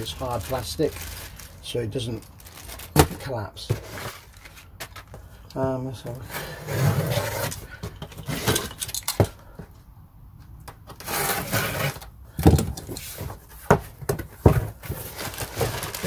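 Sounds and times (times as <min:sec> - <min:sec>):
packaging rustling: 0:00.0 - 0:05.2, 0:14.4 - 0:16.0.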